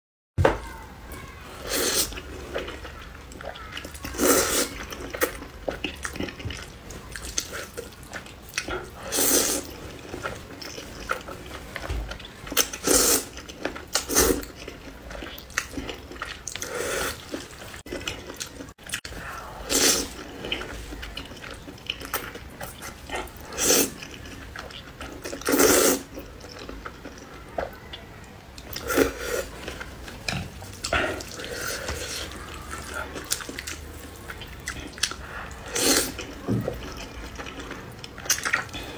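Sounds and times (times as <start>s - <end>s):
chewing and mouth sounds: 1.8s - 38.9s
wet noodle slurps: 4.1s - 4.9s, 9.0s - 9.8s, 12.8s - 13.4s, 19.2s - 20.6s, 22.9s - 24.1s, 25.3s - 26.1s, 35.0s - 36.3s.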